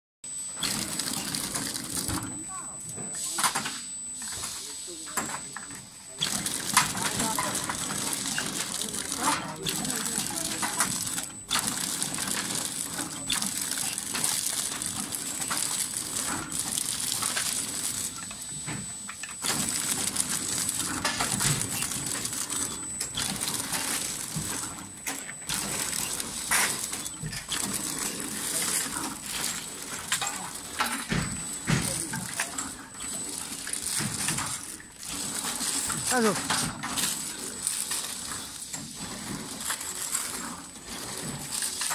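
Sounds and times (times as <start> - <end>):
steady machine noise: 0.3 - 41.9.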